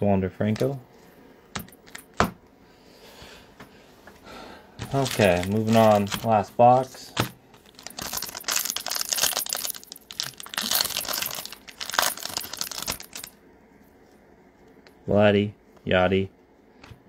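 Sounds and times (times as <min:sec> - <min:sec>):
foil wrapper crinkling and tearing: 0:04.8 - 0:06.4, 0:07.6 - 0:13.4.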